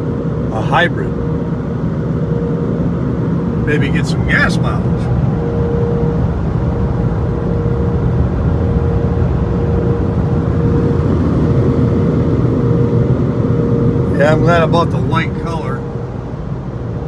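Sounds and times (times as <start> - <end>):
car wash blowers rushing air: 0.0 - 17.0
faint whine: 0.0 - 17.0.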